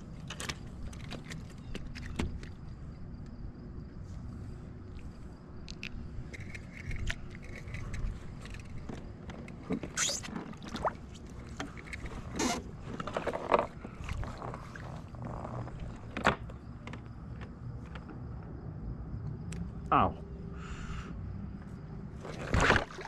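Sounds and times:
scraping and handling on kayak: 6.4s - 16.7s, 22.2s - 23.0s.

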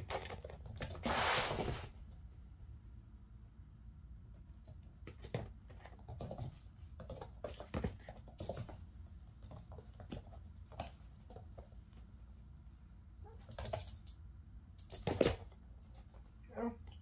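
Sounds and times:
kitten paws scampering on floor: 4.4s - 12.4s.

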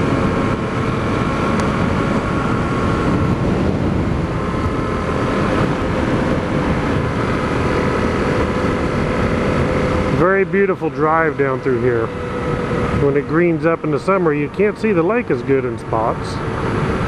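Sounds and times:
wind noise: 0.0s - 10.6s
motorcycle engine running: 0.0s - 17.0s
road noise: 0.0s - 17.0s.

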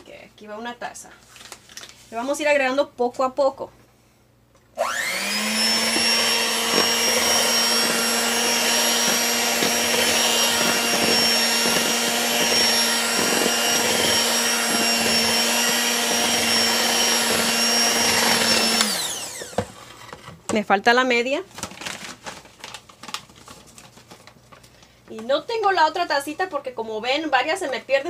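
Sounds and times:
electric hand mixer running: 4.8s - 20.0s.

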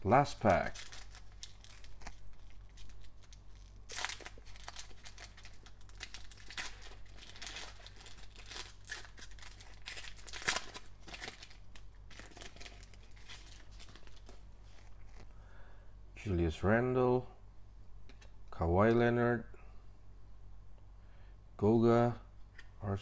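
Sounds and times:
foil pack crinkling and tearing: 0.4s - 15.2s.

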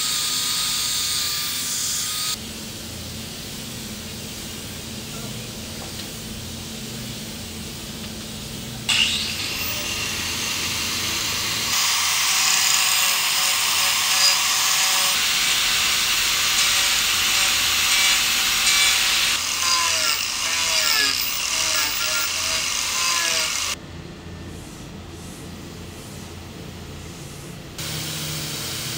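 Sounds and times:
electric grinder motor whine: 8.9s - 23.8s
sanding pad grinding wood: 8.9s - 23.8s.

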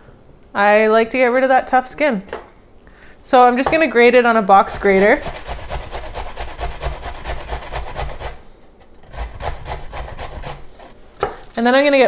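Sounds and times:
ginger rasping on grater: 4.7s - 8.4s, 9.0s - 11.0s.

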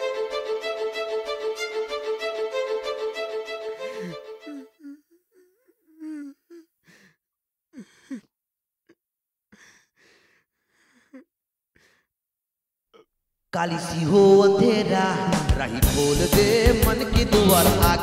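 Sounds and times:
man crying quietly: 3.9s - 10.2s
shaky breaths and sighs: 3.9s - 12.1s.

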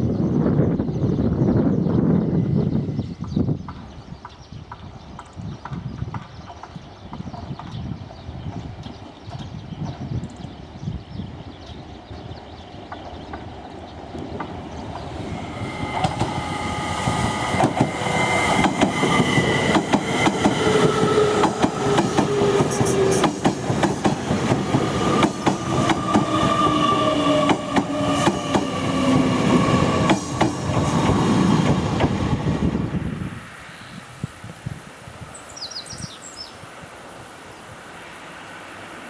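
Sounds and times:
train whining: 10.6s - 35.7s.

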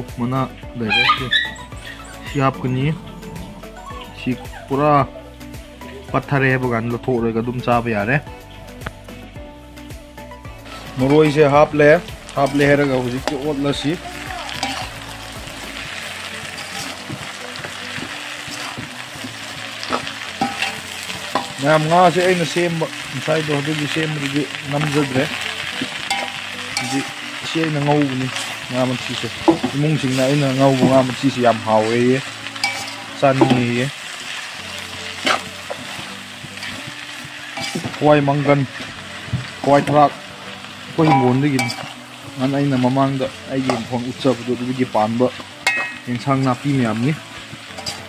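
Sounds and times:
greens sizzling in a wok: 5.4s - 48.0s
metal spatula scraping a wok: 10.6s - 40.0s, 43.6s - 48.0s.

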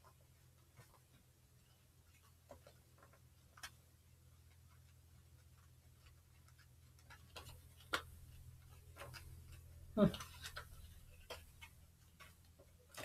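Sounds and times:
low steady hum: 0.0s - 13.0s
cards being shuffled: 4.6s - 13.0s.

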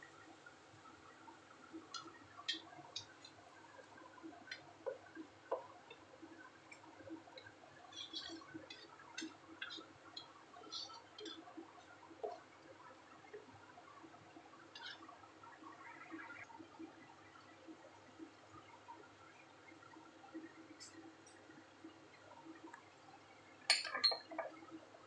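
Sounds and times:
wet squelching of simmering food: 0.1s - 24.8s.

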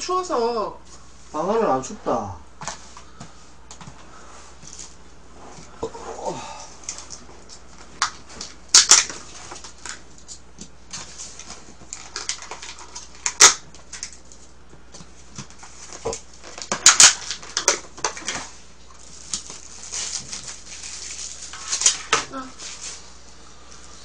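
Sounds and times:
plastic packaging crinkling: 11.0s - 14.6s, 15.5s - 23.0s.

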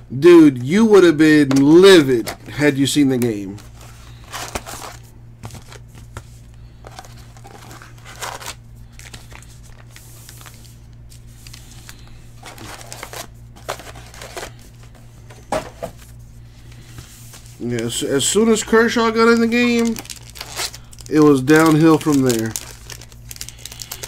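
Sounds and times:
steady low hum: 0.0s - 24.0s
foil wrappers crinkling and tearing: 3.0s - 15.0s, 17.6s - 24.0s.

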